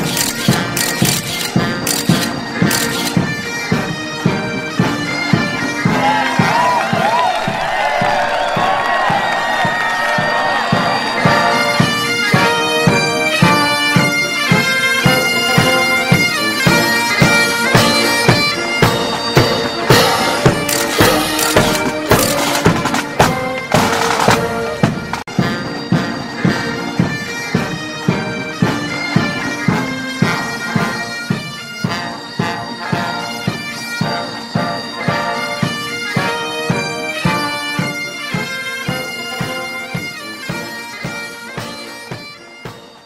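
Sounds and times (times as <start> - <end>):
steady drum beat: 0.0 - 30.3
bagpipes playing a tune: 0.0 - 43.0.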